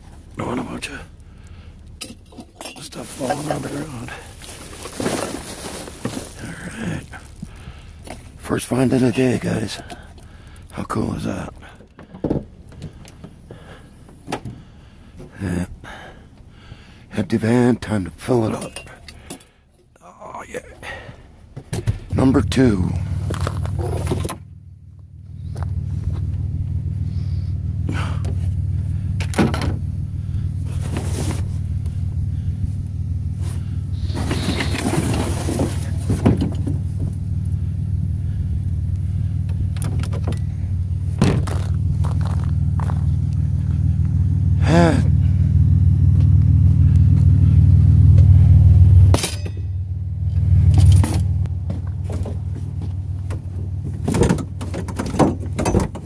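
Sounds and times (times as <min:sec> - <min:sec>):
vehicle engine rumbling: 0:00.0 - 0:56.0
garbage bags rustling: 0:02.8 - 0:07.8.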